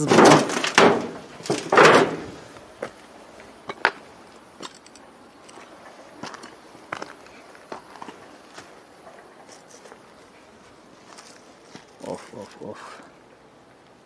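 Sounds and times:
footsteps crunching on rubble: 0.0 - 12.6.

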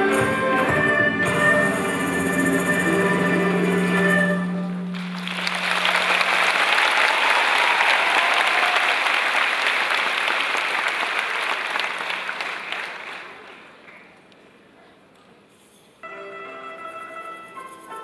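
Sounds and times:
orchestra low held tone: 0.0 - 5.6, 16.0 - 17.9
audience applauding: 4.9 - 14.3.

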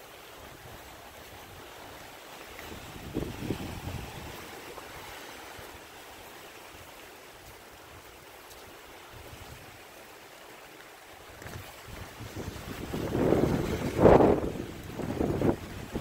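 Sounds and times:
gusty wind hiss: 0.0 - 16.0
wind bumps on microphone: 2.6 - 4.8, 11.3 - 16.0.

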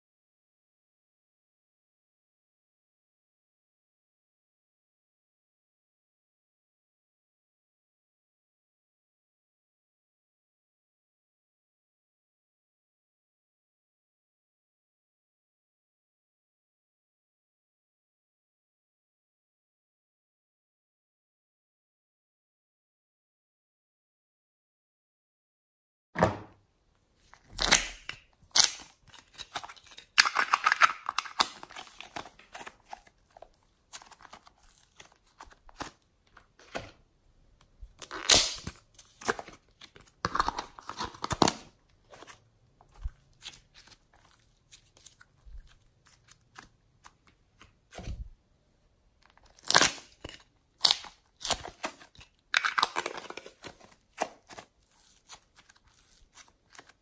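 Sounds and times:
foam clay crinkly tearing: 27.2 - 36.0, 38.0 - 47.2, 49.4 - 57.0.

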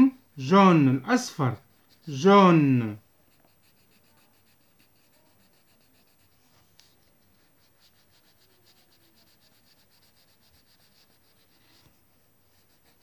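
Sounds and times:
pencil scribbling on paper: 1.6 - 13.0.

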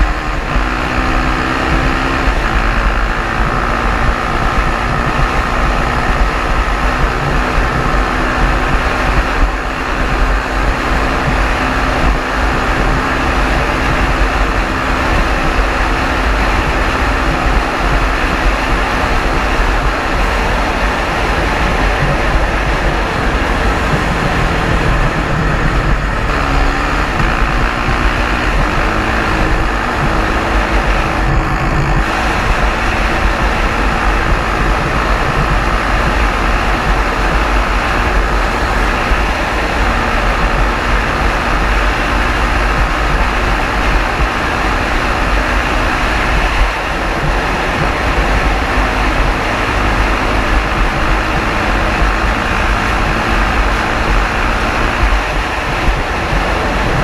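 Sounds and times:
motorcycle engine running hard: 0.0 - 57.0
wind rush over microphone: 0.0 - 57.0.

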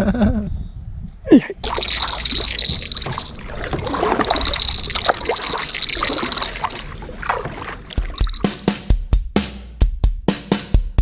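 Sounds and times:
stream water splashing: 1.6 - 8.7.

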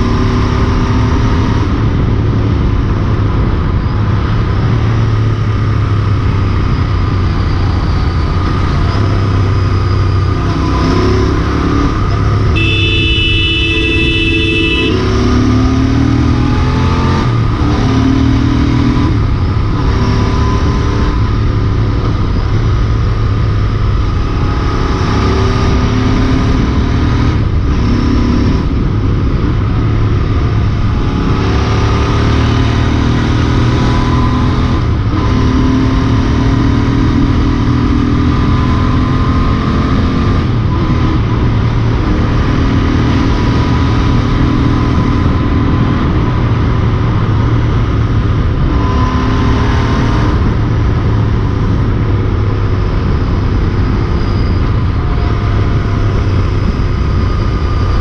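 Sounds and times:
motorcycle engine and exhaust: 0.0 - 58.0
wind rush on microphone: 0.0 - 58.0.

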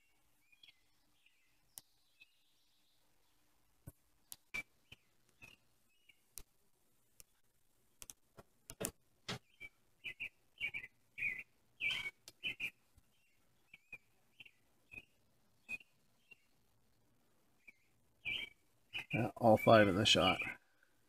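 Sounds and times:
high chirping calls: 4.3 - 6.2, 9.4 - 16.6, 17.6 - 20.8
sharp clicks and knocks: 8.0 - 9.5.

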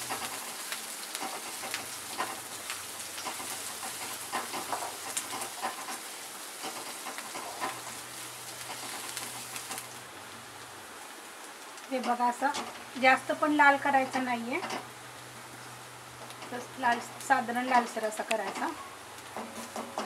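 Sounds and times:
spatula scraping and tapping pan: 0.0 - 8.0, 14.6 - 14.9, 16.2 - 20.0
vegetables sizzling in hot oil: 0.0 - 20.0.

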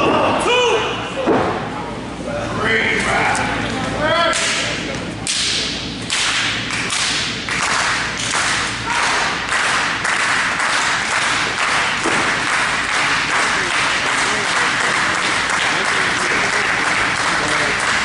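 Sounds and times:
person shouting: 0.0 - 1.0
crowd clapping in unison: 6.1 - 18.0.

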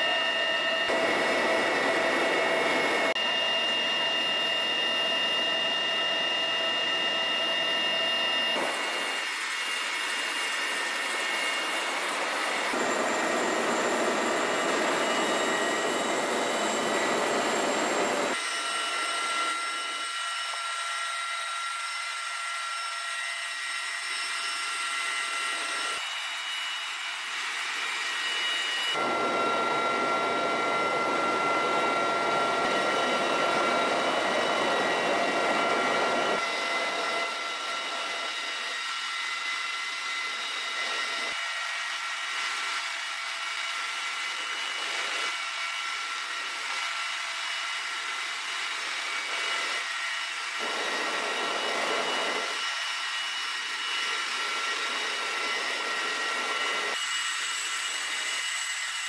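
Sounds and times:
high steady whines: 0.0 - 20.0, 27.8 - 41.4, 50.5 - 52.8.

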